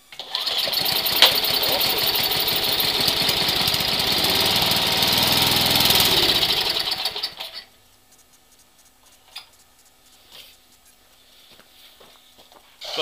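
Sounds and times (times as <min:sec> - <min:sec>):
small gas engine running: 0:00.2 - 0:07.6.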